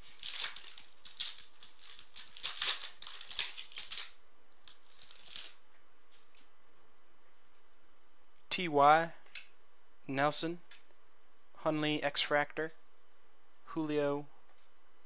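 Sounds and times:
foil wrapper crinkling and tearing: 0.0 - 6.2.

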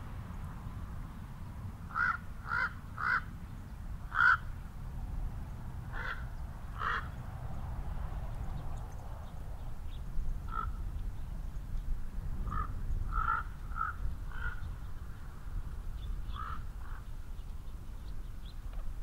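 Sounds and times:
crows cawing: 1.9 - 3.3, 4.1 - 4.5, 5.9 - 7.2, 10.5 - 10.8, 12.5 - 14.6, 16.3 - 17.0.

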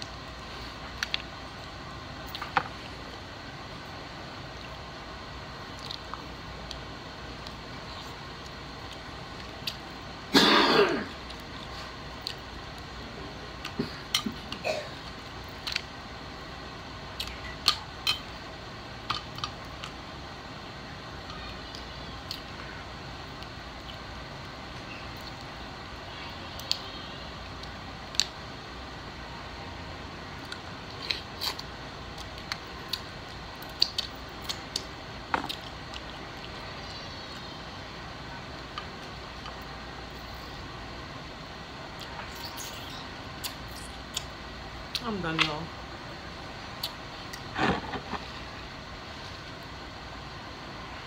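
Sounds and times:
steady low hiss: 0.0 - 51.0
wet mouth smacks and clicks: 32.2 - 34.9, 42.0 - 45.0
mouth smacks: 41.9 - 45.0, 46.7 - 48.3.

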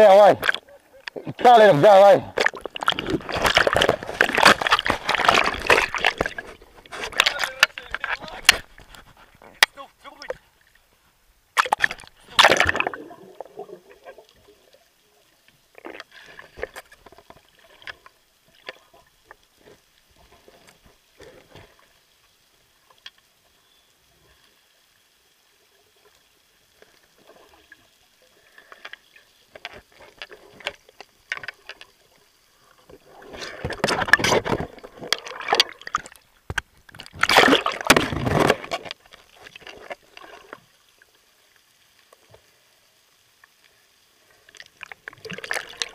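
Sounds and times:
water sloshing and gurgling: 0.0 - 23.2, 24.4 - 42.5, 44.2 - 45.9
small splashes and clicks: 0.3 - 1.3, 2.3 - 10.8, 11.6 - 23.5, 26.0 - 42.5, 43.2 - 45.9
loud splashing and bubbling: 2.2 - 8.6, 11.6 - 14.2, 33.2 - 36.2, 37.1 - 38.7, 45.1 - 45.9.

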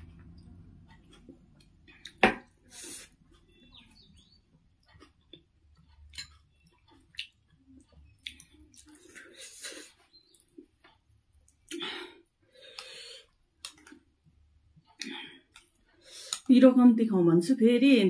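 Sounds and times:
chewing: 2.9 - 11.9, 12.5 - 14.1, 14.8 - 16.5.

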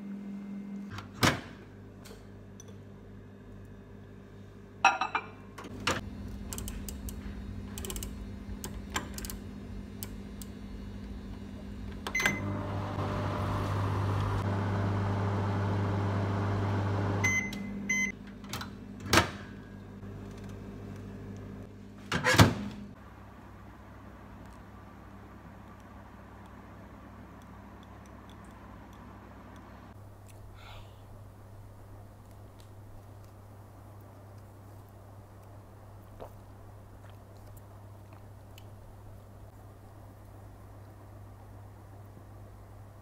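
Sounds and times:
microwave oven humming: 0.0 - 30.2
microwave beeps: 12.0 - 12.6, 17.2 - 18.2.

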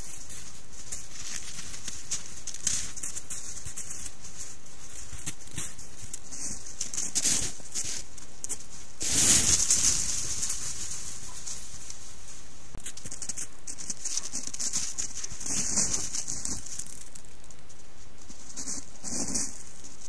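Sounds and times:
microphone hiss: 0.0 - 20.0
rustling in snow: 0.0 - 20.0.

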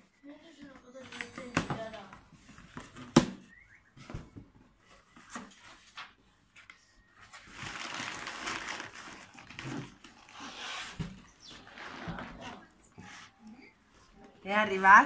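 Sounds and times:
packing paper rustling: 7.2 - 13.3.

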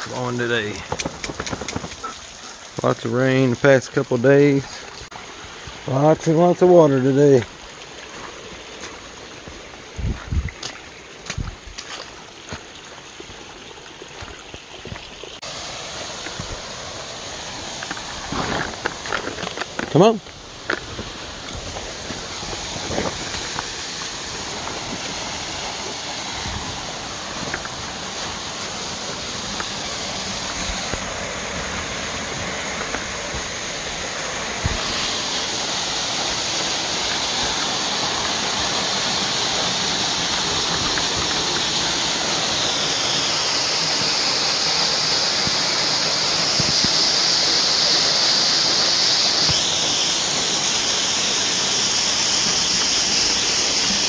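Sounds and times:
rushing creek: 0.0 - 54.0
small waterfall: 0.0 - 54.0.

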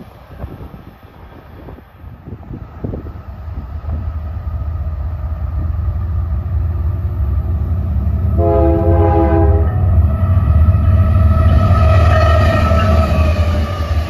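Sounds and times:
diesel locomotive rumble: 0.0 - 14.0
locomotive horn blast: 8.3 - 10.3.

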